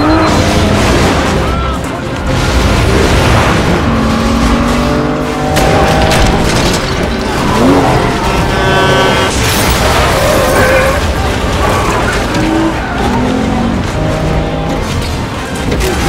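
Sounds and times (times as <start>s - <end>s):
car engines: 0.0s - 16.0s
orchestral music: 0.0s - 16.0s
tyres skidding: 0.0s - 16.0s
loud crash: 0.2s - 4.8s.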